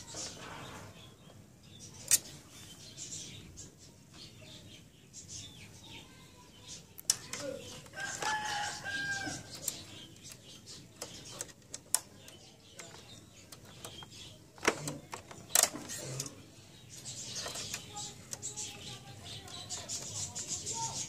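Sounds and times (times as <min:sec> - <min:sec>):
small plastic and metal clicks: 0:07.0 - 0:08.4, 0:09.5 - 0:16.4.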